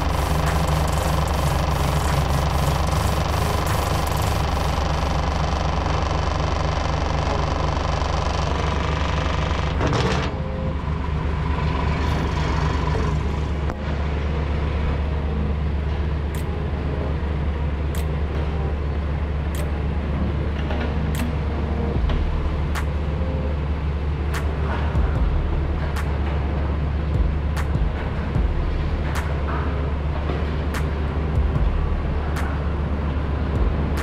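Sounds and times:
rushing noise: 0.0s - 9.9s
truck engine droning: 0.0s - 34.0s.

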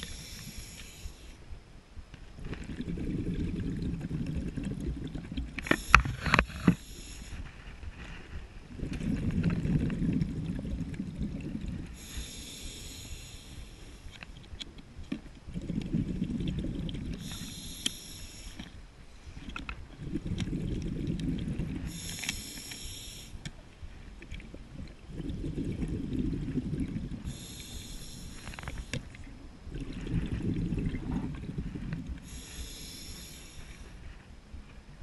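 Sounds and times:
regulator inhale hiss: 0.0s - 1.4s, 5.6s - 7.6s, 11.9s - 14.2s, 17.2s - 19.5s, 21.8s - 23.5s, 27.2s - 29.2s, 32.2s - 34.2s
exhaled bubbles rumbling: 2.3s - 23.2s, 23.8s - 35.0s.

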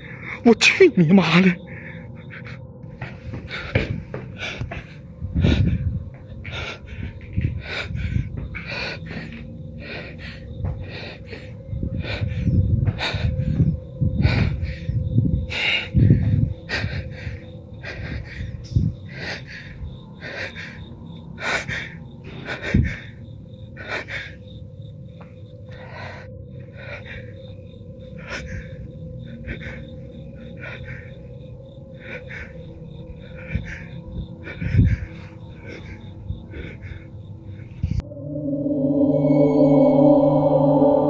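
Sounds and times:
person breathing hard and fast: 1.6s - 41.0s
steady hum: 36.5s - 41.0s.

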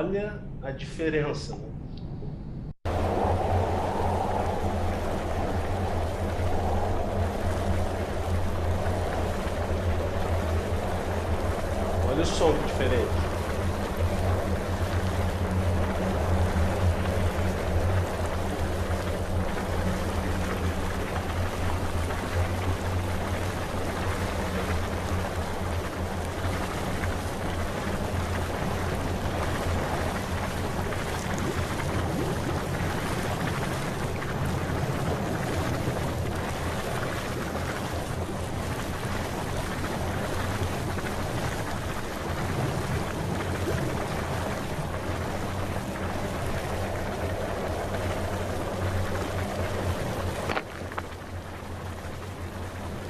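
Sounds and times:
low hum: 0.0s - 53.0s
rushing noise: 1.7s - 50.7s.

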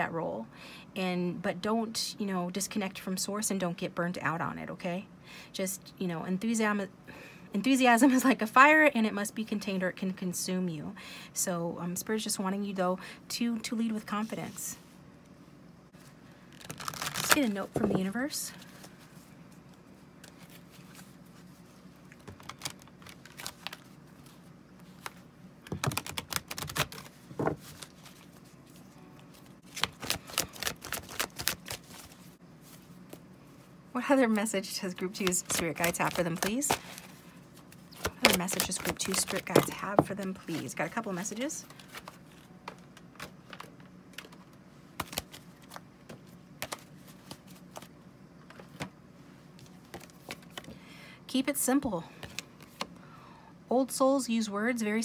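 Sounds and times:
cards being shuffled: 16.5s - 18.0s, 19.6s - 33.3s, 35.1s - 40.8s, 41.6s - 47.9s, 49.6s - 50.7s
cards clicking and tapping: 37.9s - 40.1s.

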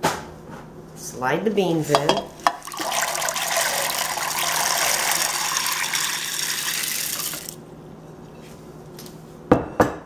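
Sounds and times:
beans pouring into water: 2.5s - 7.6s.

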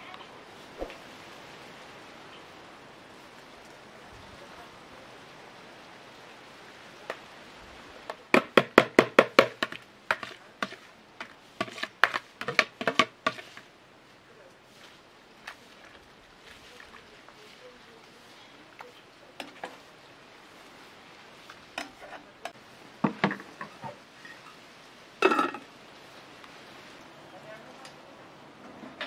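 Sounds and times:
low steady hiss: 0.0s - 29.0s
metal spoon knocking on pot: 12.0s - 13.4s.

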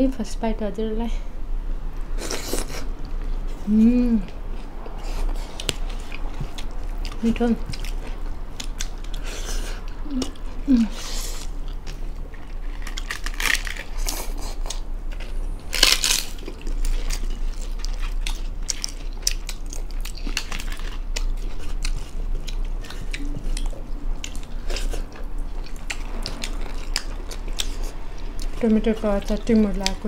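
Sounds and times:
wet chewing and lip-smacking: 4.9s - 15.2s, 16.0s - 30.0s
food crunch: 11.2s - 30.0s.

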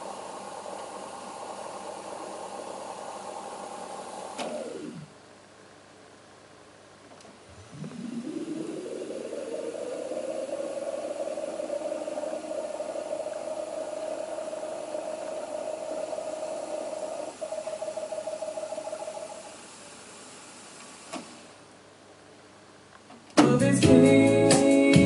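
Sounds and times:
tape playback tone rising in pitch: 7.5s - 19.6s.

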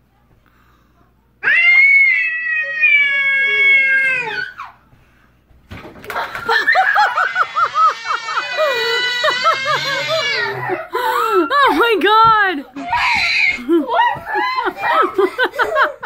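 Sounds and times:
cat yowling: 1.4s - 4.7s
high-pitched human laughter: 6.1s - 12.0s, 12.8s - 16.0s.

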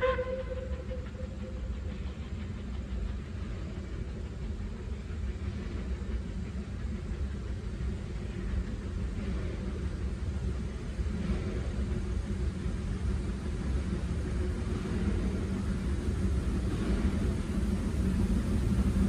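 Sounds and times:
steam whistle: 0.0s - 1.6s
steam locomotive rumble: 0.0s - 19.0s.

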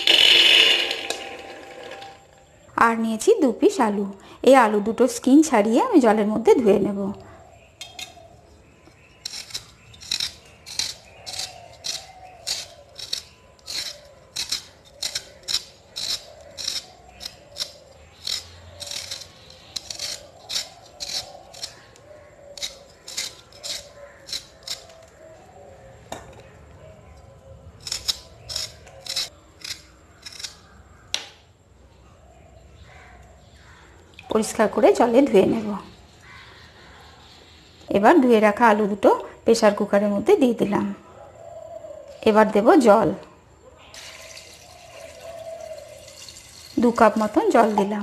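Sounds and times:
peeler scraping potato skin: 7.8s - 25.2s, 27.8s - 30.8s.

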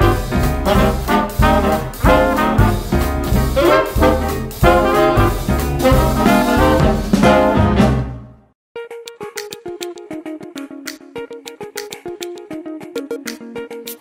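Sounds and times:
upbeat swing music with brass: 0.0s - 8.5s.

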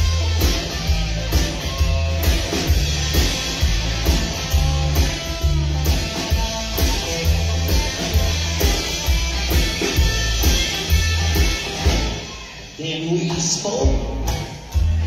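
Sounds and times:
upright double bass: 0.0s - 12.1s
drums: 0.0s - 15.0s
electric guitar: 0.0s - 15.0s.

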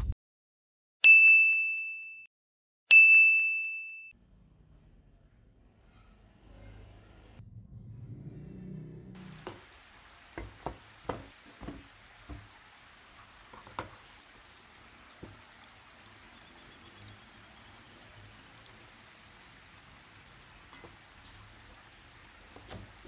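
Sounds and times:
low hum: 4.2s - 9.4s
knife knocking on wooden board: 10.4s - 12.5s.

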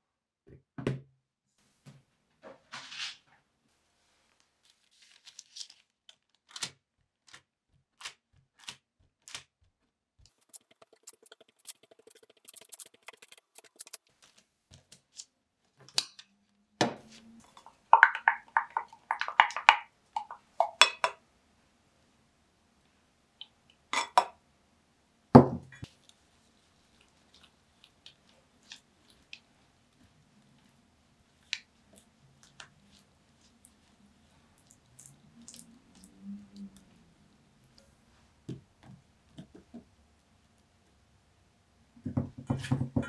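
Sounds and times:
paper rustling: 4.2s - 9.4s, 10.3s - 15.2s.

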